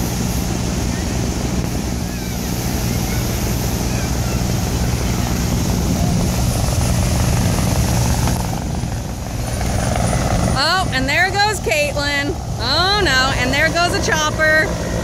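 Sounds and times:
helicopter rotor beating: 0:00.0 - 0:15.0
surf washing: 0:00.0 - 0:15.0.

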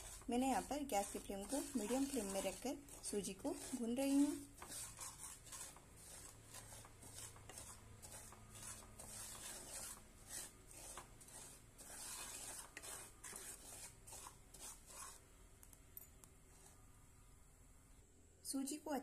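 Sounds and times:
wooden spatula scraping pan: 0:00.0 - 0:15.2.

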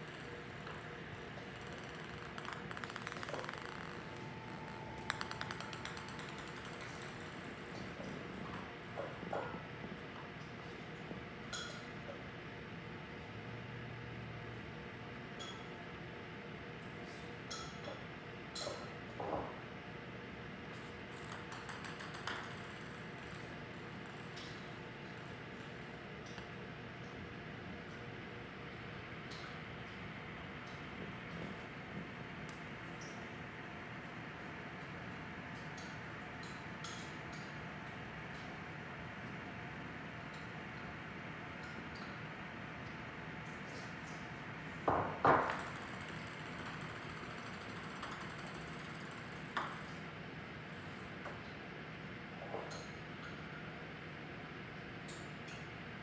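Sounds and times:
ping pong ball bouncing on tiles: 0:00.0 - 0:08.4, 0:21.2 - 0:25.8, 0:44.9 - 0:50.0.

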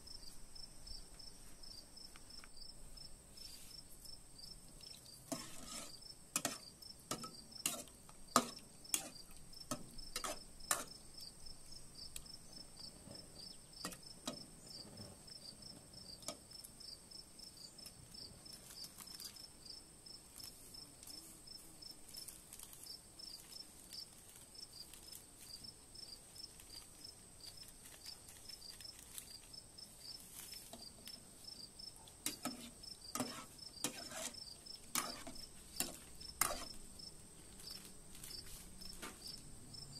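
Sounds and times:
insects chirping: 0:00.0 - 0:39.9
metal ladle scraping metal pot: 0:05.3 - 0:10.9, 0:32.2 - 0:36.8.

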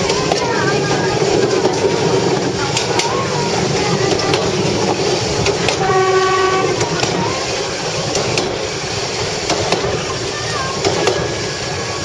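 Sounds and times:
wheel clicks over rail joints: 0:00.0 - 0:05.9, 0:06.8 - 0:08.7, 0:09.3 - 0:11.4
railbus rumbling along track: 0:00.0 - 0:12.0
short horn blast: 0:05.8 - 0:06.8.

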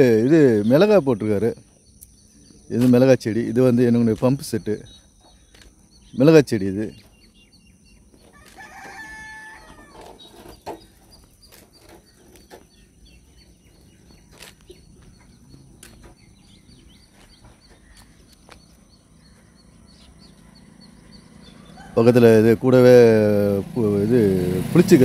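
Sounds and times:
bird chirping: 0:00.0 - 0:25.0
pitched bird call: 0:06.8 - 0:22.2
footsteps through dry vegetation: 0:08.1 - 0:09.4, 0:11.3 - 0:19.5.

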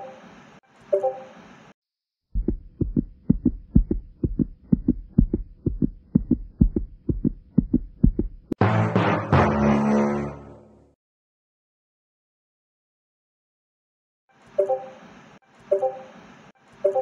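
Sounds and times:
rapid heartbeat: 0:02.4 - 0:08.6
music: 0:08.6 - 0:10.9.

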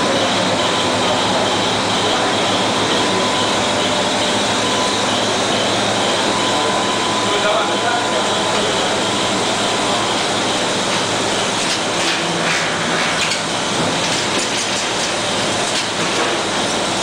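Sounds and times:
filling machine hiss and hum: 0:00.0 - 0:17.0.

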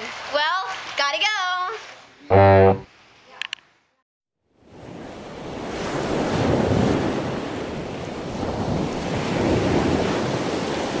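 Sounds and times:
ocean waves washing in: 0:04.8 - 0:11.0.

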